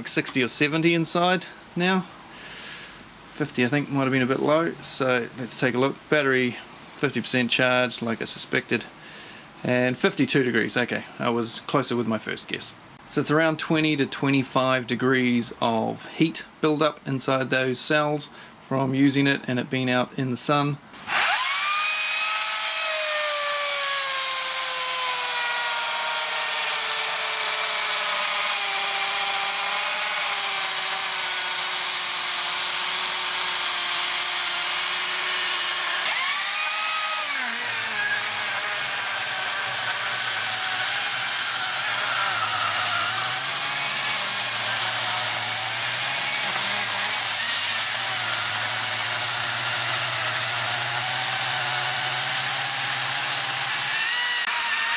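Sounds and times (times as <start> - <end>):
electric chainsaw cutting wood: 21.0 - 54.9.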